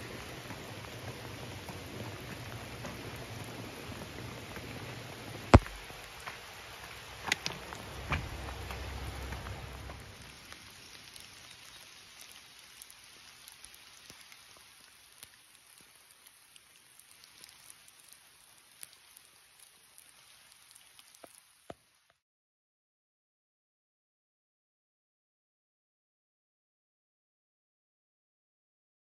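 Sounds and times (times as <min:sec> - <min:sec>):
rain falling: 0:00.0 - 0:22.2
sharp knocks: 0:05.6 - 0:05.8
low rumble: 0:07.6 - 0:10.3.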